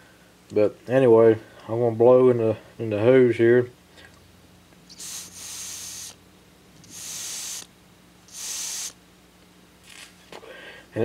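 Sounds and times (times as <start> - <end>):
airy hisses of breath through hose: 4.9 - 6.2, 6.8 - 7.7, 8.3 - 9.0.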